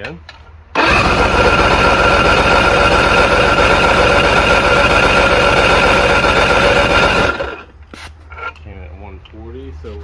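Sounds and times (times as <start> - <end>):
electric starter cranking outboard motor: 0.8 - 7.7.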